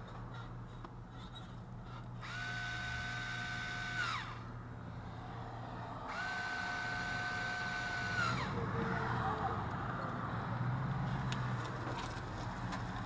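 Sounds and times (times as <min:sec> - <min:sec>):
cordless screwdriver motor whine: 0:02.2 - 0:04.5, 0:06.1 - 0:08.6.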